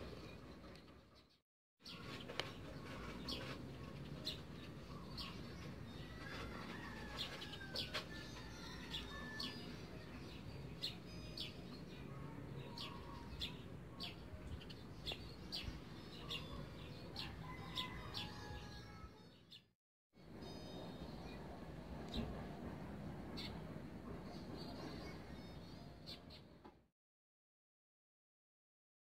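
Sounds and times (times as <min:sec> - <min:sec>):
birds chirping: 0:00.0 - 0:18.8.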